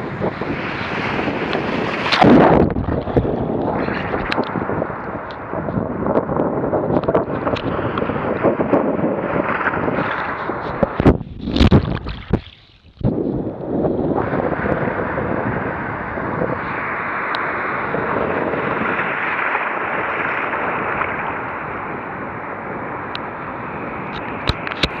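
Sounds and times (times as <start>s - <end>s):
loud water splashes: 0.2s - 4.7s, 9.1s - 13.1s, 16.6s - 22.0s
sea water sloshing and splashing: 0.3s - 4.7s, 9.2s - 13.1s, 18.5s - 21.9s.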